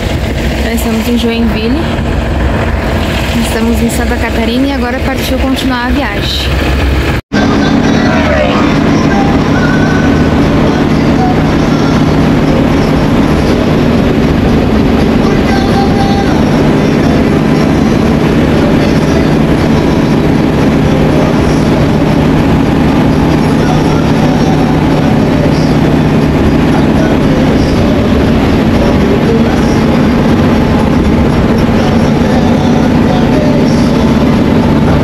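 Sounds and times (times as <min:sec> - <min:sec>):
bus engine running: 0:00.0 - 0:35.0
road rumble: 0:00.0 - 0:35.0.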